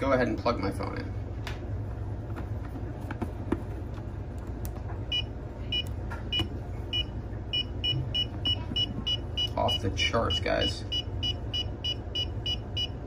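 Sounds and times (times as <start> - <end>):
meter alarm beeping: 5.1 - 13.0.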